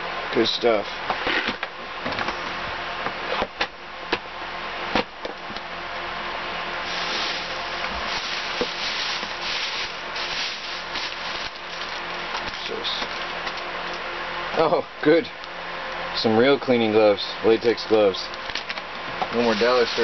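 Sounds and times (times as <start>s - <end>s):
plastic bag rustling: 6.8s - 13.4s, 18.6s - 20.0s.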